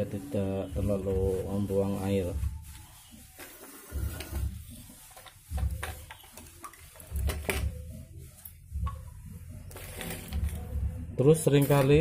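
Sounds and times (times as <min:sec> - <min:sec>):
plastic pipes knocking on tiled floor: 0:03.5 - 0:07.8.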